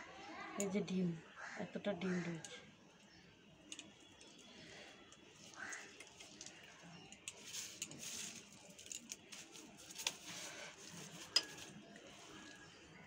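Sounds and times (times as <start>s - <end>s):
hands handling fish on newspaper: 3.8s - 13.0s.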